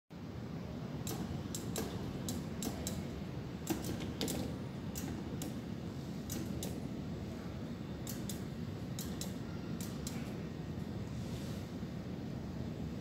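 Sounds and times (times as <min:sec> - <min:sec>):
claw machine clicks: 0:01.0 - 0:05.6, 0:06.3 - 0:06.8, 0:08.0 - 0:10.3.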